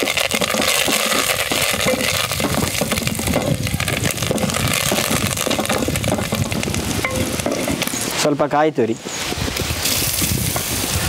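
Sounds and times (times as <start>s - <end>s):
wooden spatula against metal pan: 0.0s - 8.0s
spices crackling in hot ghee: 0.0s - 8.2s, 9.6s - 11.0s.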